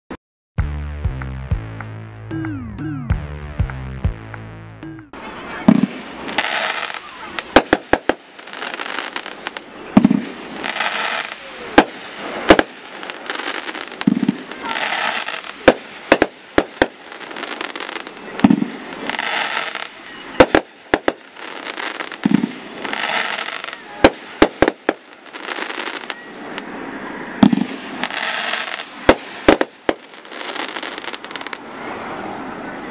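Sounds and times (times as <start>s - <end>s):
firework shells bursting: 5.7s - 26.7s, 27.4s - 31.6s.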